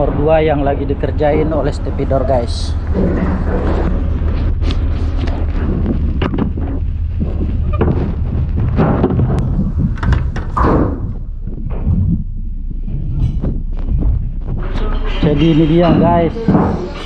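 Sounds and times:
steady low rumble: 0.0 - 17.0
knocks and thuds: 5.3 - 14.8, 15.8 - 17.0.

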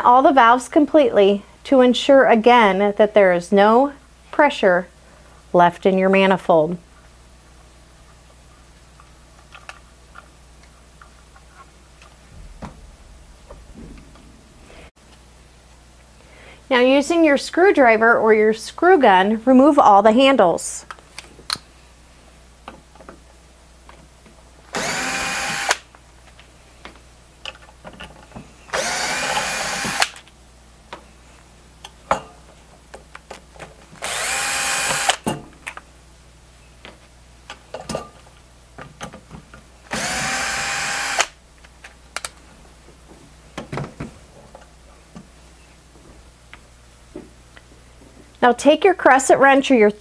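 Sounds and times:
screw gun motor whining: 24.8 - 25.8, 28.7 - 30.2, 34.0 - 35.2, 39.9 - 41.4.

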